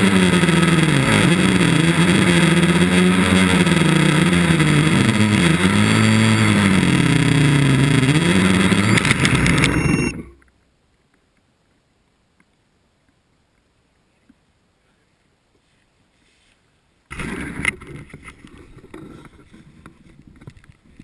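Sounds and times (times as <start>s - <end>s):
quadcopter motors whining: 0.0s - 10.4s, 17.1s - 19.6s
sharp clicks on landing: 8.0s - 11.5s.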